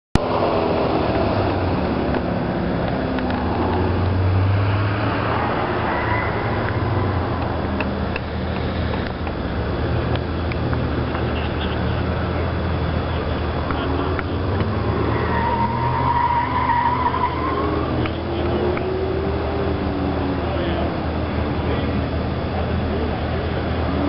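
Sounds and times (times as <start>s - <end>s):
car engine running at low revs: 0.2s - 15.9s, 16.8s - 24.0s.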